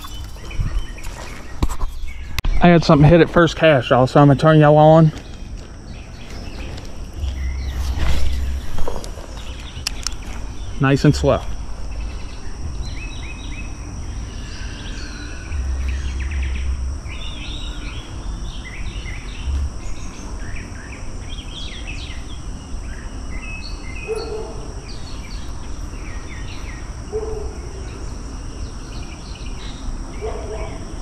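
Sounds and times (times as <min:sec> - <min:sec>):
birds chirping and calling: 0:00.0 - 0:02.8, 0:03.6 - 0:31.0
high-pitched insect drone: 0:00.0 - 0:31.0
low rumble: 0:07.0 - 0:20.0.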